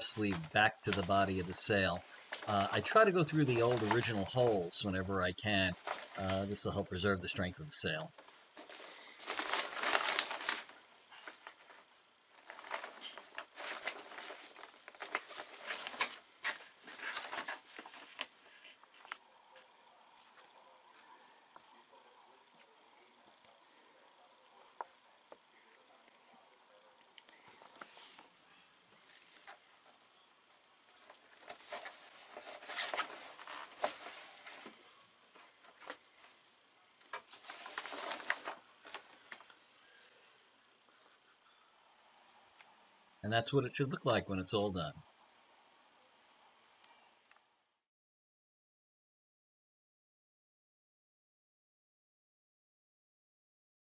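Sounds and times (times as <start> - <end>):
sailcloth crinkling and rustling: 0.0 - 6.7, 7.9 - 21.2, 30.9 - 36.4, 37.0 - 39.6.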